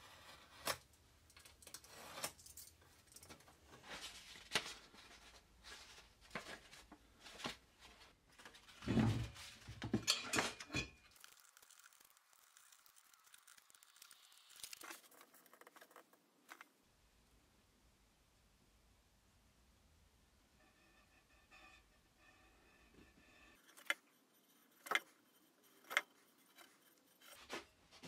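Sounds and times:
paper rustling: 11.1s - 16.7s.

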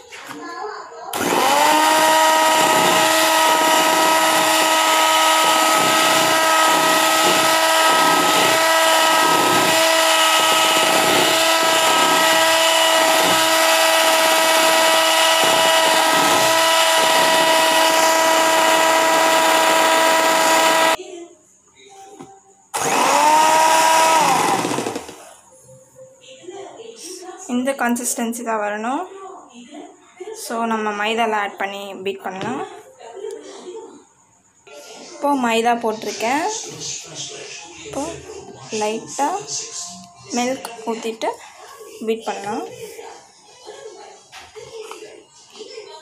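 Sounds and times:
electric hand mixer whining: 1.1s - 21.0s, 22.8s - 25.4s.

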